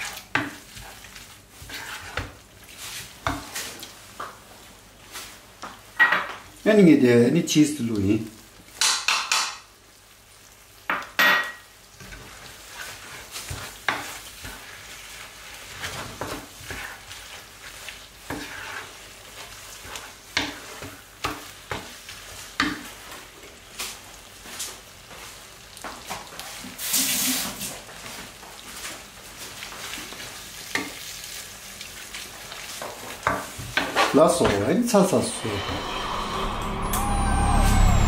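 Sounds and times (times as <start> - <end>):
spatula scraping frying pan: 0.0 - 4.0, 12.0 - 26.9
light sizzle: 0.0 - 38.0.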